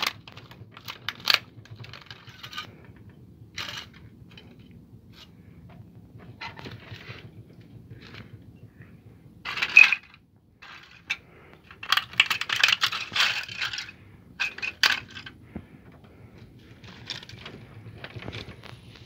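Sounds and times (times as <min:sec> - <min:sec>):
plastic parts cracking under feet: 0:00.0 - 0:04.8, 0:09.4 - 0:19.0.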